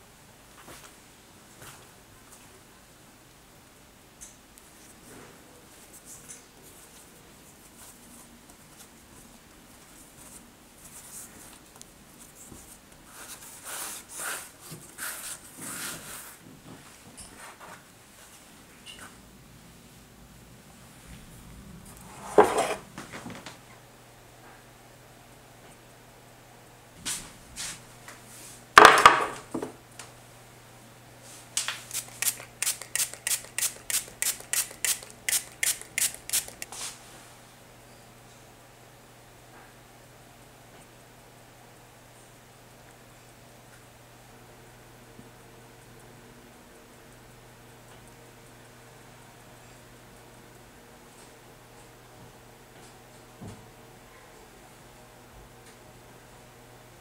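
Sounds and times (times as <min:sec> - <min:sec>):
hands rustling dough on flour: 0:27.0 - 0:28.6
spray bottle spritzing water: 0:31.9 - 0:36.8.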